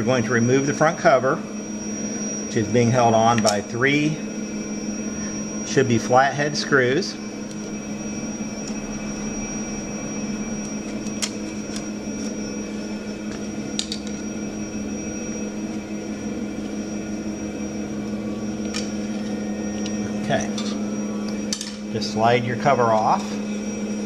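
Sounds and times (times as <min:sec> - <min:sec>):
faint high whine: 0:00.0 - 0:24.0
machine hum: 0:00.0 - 0:24.0
screwdriver metallic clicks: 0:13.3 - 0:14.2.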